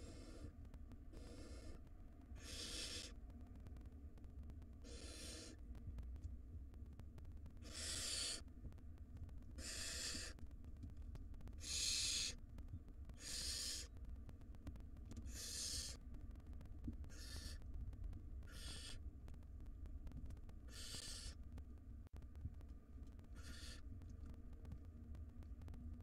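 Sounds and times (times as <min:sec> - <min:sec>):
owl nestlings hissing: 0:00.0 - 0:00.5, 0:01.1 - 0:01.8, 0:02.4 - 0:03.1, 0:04.8 - 0:05.6, 0:07.6 - 0:08.4, 0:09.6 - 0:10.4, 0:11.6 - 0:12.4, 0:13.2 - 0:13.9, 0:15.3 - 0:16.0, 0:17.1 - 0:17.6, 0:18.5 - 0:19.0, 0:20.7 - 0:21.4, 0:23.4 - 0:23.8.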